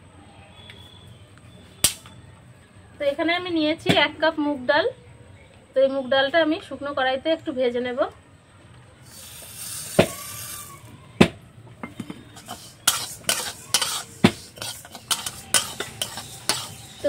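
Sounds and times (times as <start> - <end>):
hiss: 9.0 - 10.9
metal spatula scraping lentils: 12.2 - 17.0.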